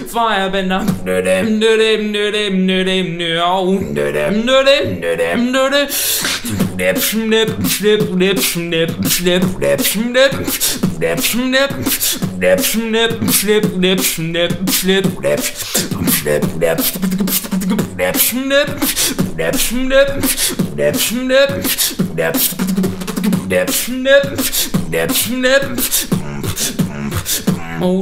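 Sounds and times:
beatboxing percussion hits: 0:00.0 - 0:01.5, 0:05.1 - 0:28.0
hummed bassline and melody: 0:06.6 - 0:28.0.

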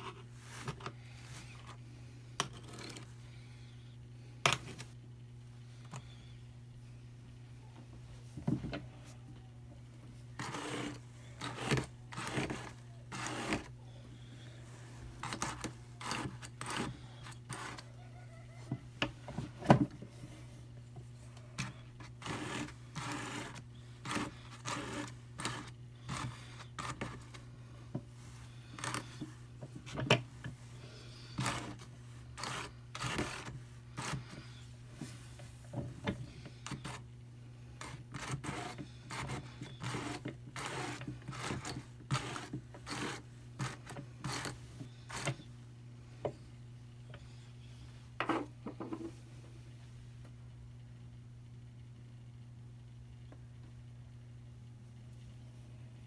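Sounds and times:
steady low hum: 0:00.0 - 0:56.0
fibre rasping off wire teeth: 0:28.6 - 0:29.3.

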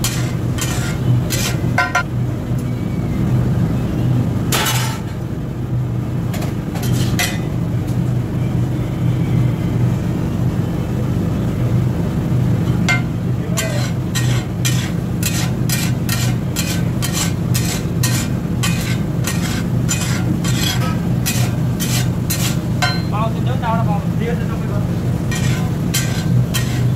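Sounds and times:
steel spatula scraping iron griddle: 0:00.0 - 0:02.0, 0:04.5 - 0:05.2, 0:06.8 - 0:07.5, 0:12.8 - 0:23.2, 0:25.2 - 0:26.9
steady low hum: 0:00.0 - 0:26.9.

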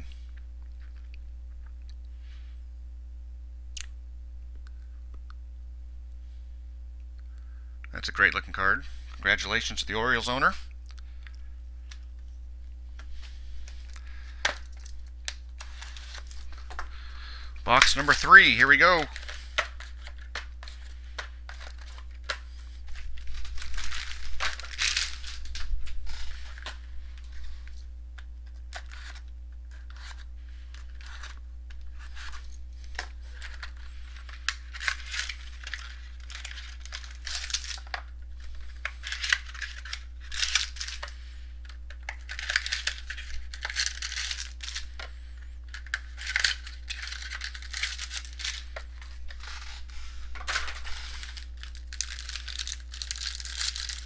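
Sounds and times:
plastic wrapping tearing and crinkling: 0:13.0 - 0:27.8, 0:28.4 - 0:54.0.

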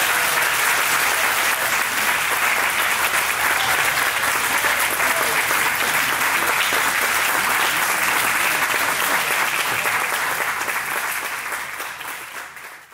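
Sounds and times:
audience applauding: 0:00.0 - 0:12.9.

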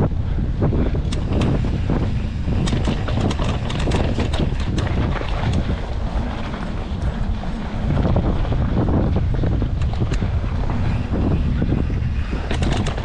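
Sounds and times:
bicycle rattling over rough ground: 0:00.0 - 0:13.0
wind buffeting microphone: 0:00.0 - 0:13.0.

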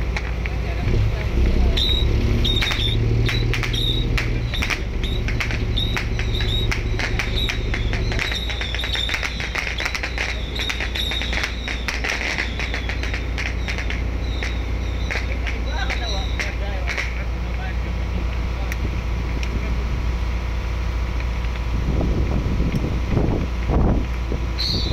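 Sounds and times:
sharp crackling clicks: 0:00.0 - 0:18.8
boat engine droning: 0:00.0 - 0:24.9.

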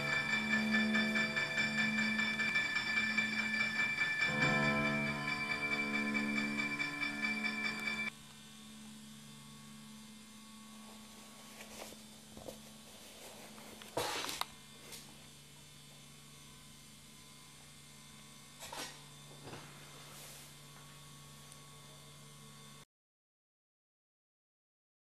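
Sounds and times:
soft rustling handling noises: 0:11.4 - 0:14.0.

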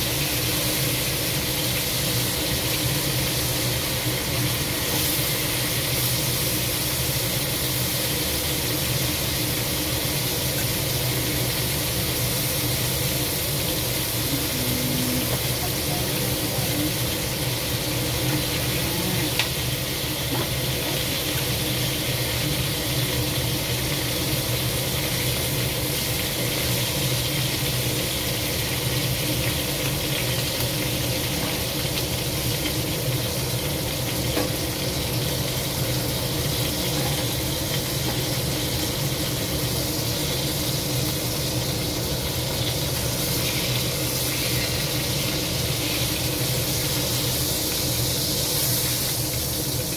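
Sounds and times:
seafood sizzling in oil: 0:00.0 - 0:49.9.

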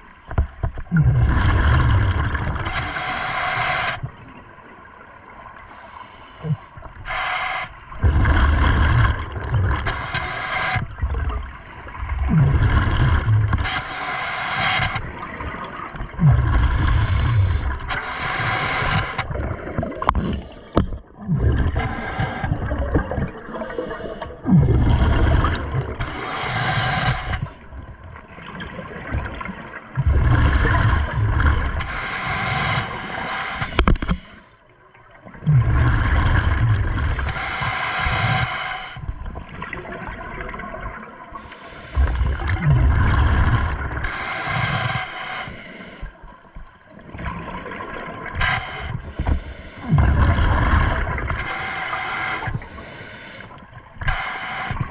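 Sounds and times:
exhaled bubbles rumbling: 0:00.0 - 0:03.0, 0:07.8 - 0:13.9, 0:14.8 - 0:34.3, 0:34.9 - 0:45.2, 0:46.0 - 0:52.9
regulator inhale hiss: 0:02.7 - 0:04.0, 0:05.6 - 0:07.9, 0:09.7 - 0:10.9, 0:13.3 - 0:15.1, 0:16.5 - 0:19.3, 0:21.8 - 0:22.6, 0:23.5 - 0:24.4, 0:26.0 - 0:27.7, 0:30.2 - 0:34.6, 0:37.0 - 0:39.1, 0:41.4 - 0:42.6, 0:44.0 - 0:46.3, 0:48.4 - 0:50.1, 0:51.3 - 0:54.9.

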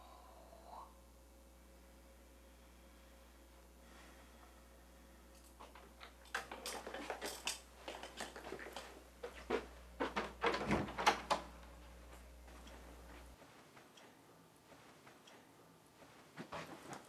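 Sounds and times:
wooden hangers clicking: 0:05.4 - 0:11.6.

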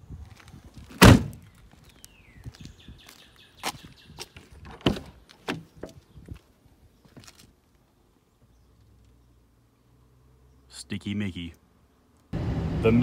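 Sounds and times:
heavy thud: 0:01.0 - 0:01.4.

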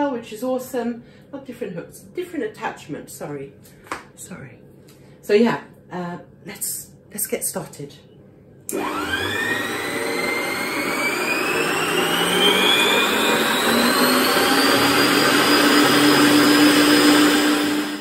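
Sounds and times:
stand mixer motor whining: 0:08.7 - 0:18.0
whisk whirring: 0:08.7 - 0:18.0.

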